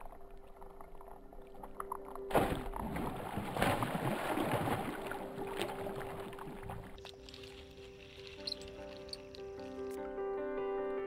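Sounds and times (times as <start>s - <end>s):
churning slapping water: 0.0s - 9.9s
fish splashing at water surface: 2.3s - 9.6s.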